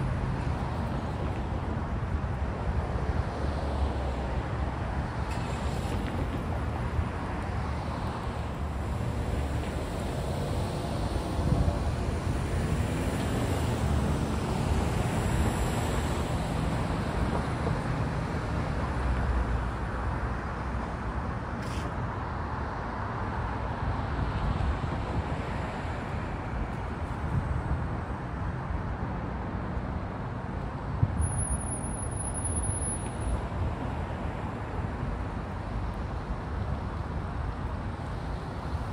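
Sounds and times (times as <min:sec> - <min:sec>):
cars driving past: 0:00.0 - 0:38.9.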